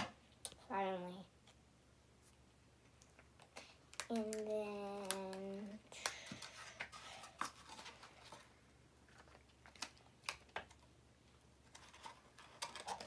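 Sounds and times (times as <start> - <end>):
small clicks and taps: 2.9 - 7.5.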